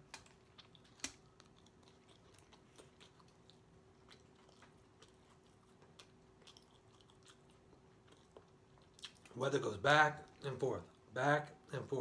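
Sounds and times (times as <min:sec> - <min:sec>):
wet chewing clicks and smacks: 0:00.0 - 0:09.4.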